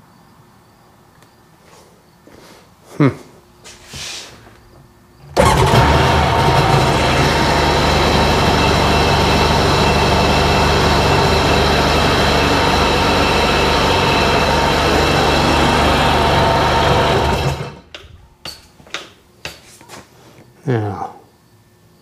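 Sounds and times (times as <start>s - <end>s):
two-stroke engine idling: 5.4s - 17.9s.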